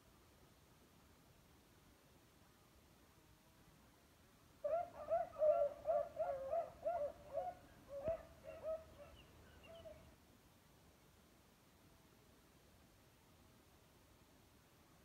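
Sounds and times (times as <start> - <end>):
dogs baying: 4.7 - 9.2.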